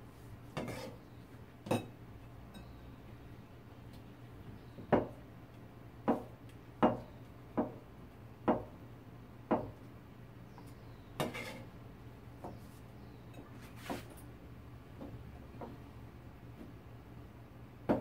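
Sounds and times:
blade scraping cutting board: 0.6 - 1.0, 11.2 - 11.7.

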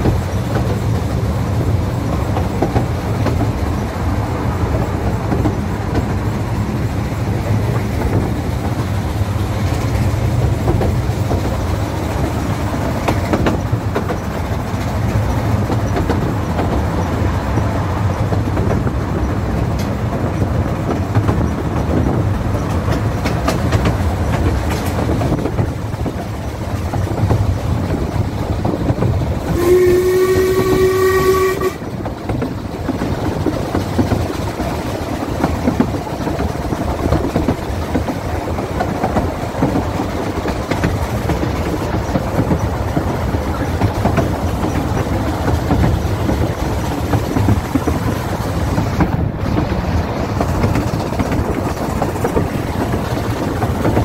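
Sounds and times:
train rumbling: 0.0 - 54.0
locomotive whistle: 29.4 - 31.9.

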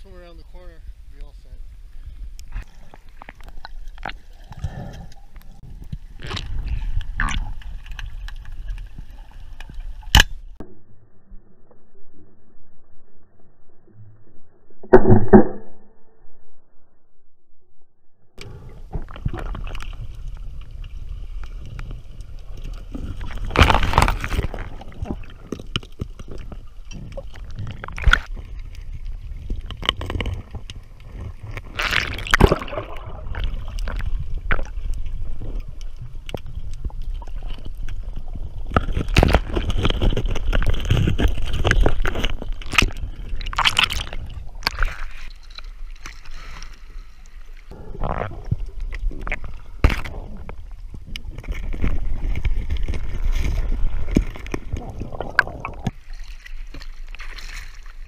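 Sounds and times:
water churning and gurgling: 0.0 - 15.9, 18.4 - 58.0
knocks and clicks: 14.8 - 15.8
rushes of water: 18.4 - 58.0.

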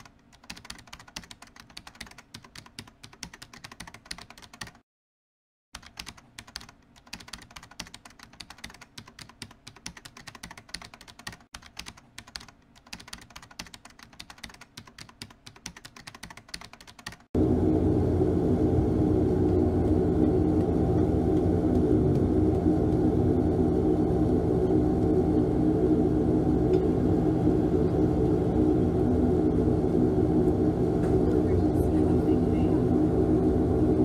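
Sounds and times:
keyboard typing: 0.0 - 4.8, 5.8 - 17.3.

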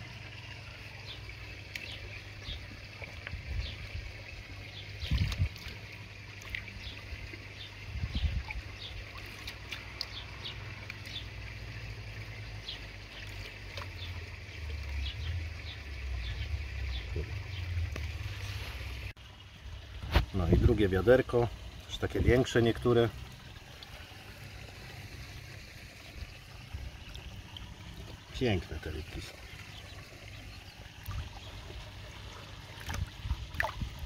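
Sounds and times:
water splashing and trickling: 0.0 - 34.0
low steady rumble: 13.9 - 28.4.

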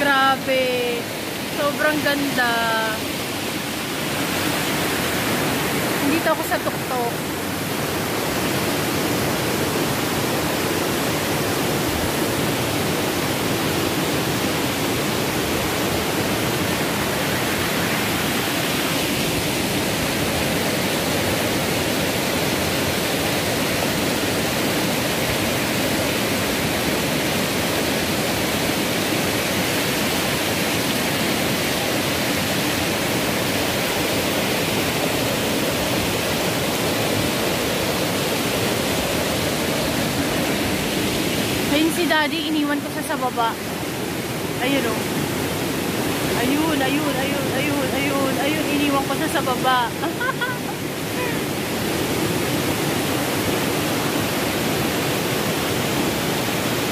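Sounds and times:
waterfall rushing: 0.0 - 56.9.

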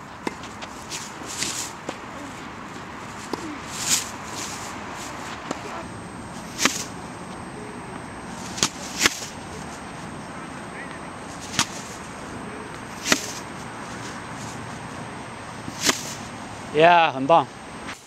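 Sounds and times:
tennis balls bouncing on court: 0.0 - 16.3
tennis ball racket hits: 0.2 - 9.9, 10.8 - 14.6, 15.6 - 16.3.

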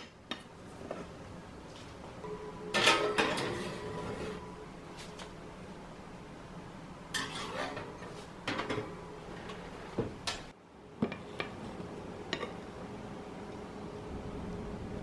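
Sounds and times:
kitchenware clattering: 2.2 - 4.6, 7.1 - 10.4.

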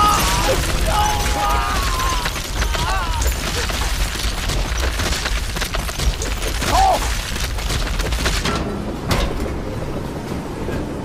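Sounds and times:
person crying out: 0.0 - 3.9
crackling rustling scurrying: 0.0 - 11.0.

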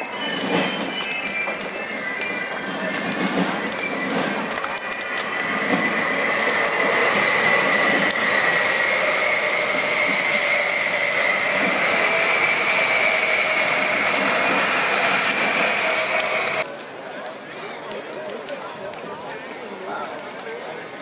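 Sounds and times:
high-pitched whine: 0.0 - 16.6
train wheels on rails: 0.0 - 21.0.

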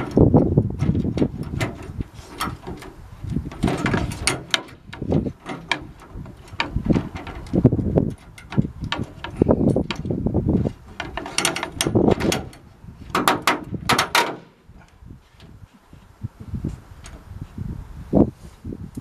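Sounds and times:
metal brackets knocking on plywood: 10.9 - 14.5.

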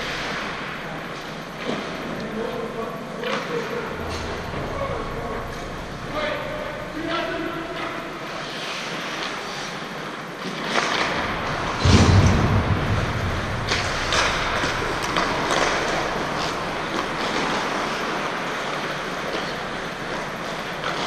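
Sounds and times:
hockey stick clacks: 7.7 - 11.8, 13.7 - 21.0
skate blades scraping ice: 8.2 - 11.8
heavy low thump: 11.6 - 15.5.

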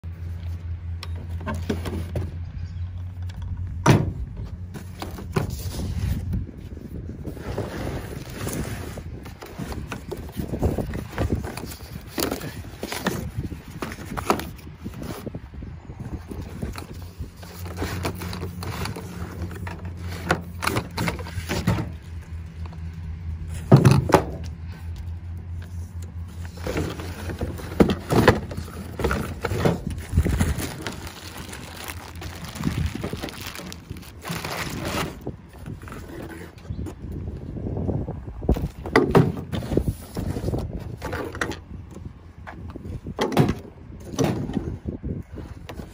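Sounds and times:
handling tool parts and cardboard: 0.1 - 45.9
wind on microphone: 3.4 - 20.2, 26.6 - 45.9.

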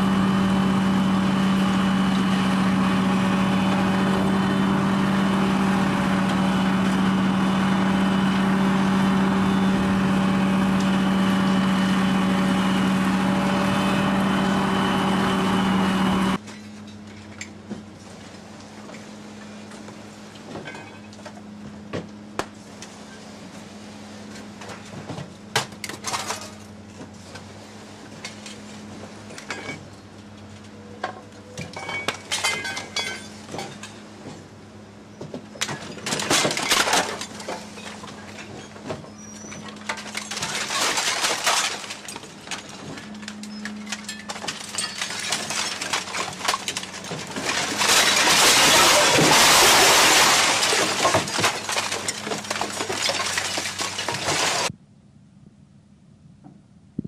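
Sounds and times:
steady machine hum: 0.0 - 35.2, 39.7 - 57.0
scrap metal clanking and crashing: 20.5 - 21.4, 24.5 - 27.0, 28.1 - 30.0, 30.8 - 34.5, 35.2 - 54.7.

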